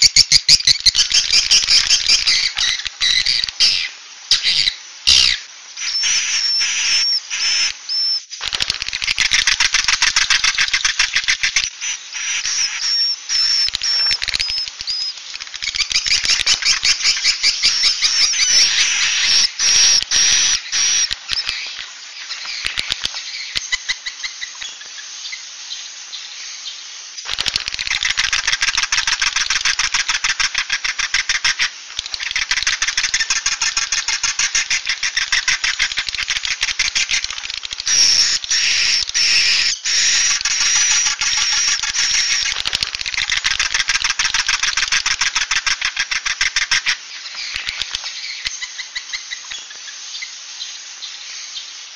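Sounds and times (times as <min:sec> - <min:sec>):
swiftlet twittering calls: 0:00.0 - 0:51.8
high chirps: 0:10.4 - 0:25.5.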